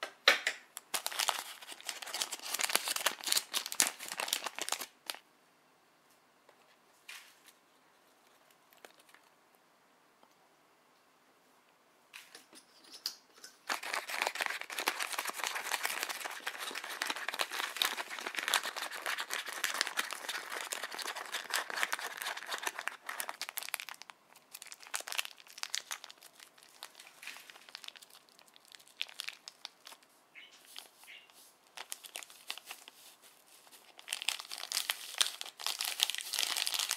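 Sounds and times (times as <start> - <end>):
candy packets crinkling: 0.8 - 5.2, 8.1 - 9.4, 13.6 - 36.9.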